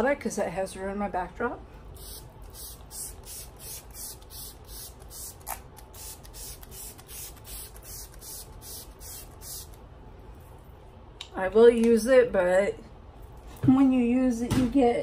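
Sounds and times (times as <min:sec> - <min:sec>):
spray bottle spritzes: 0:02.0 - 0:09.8.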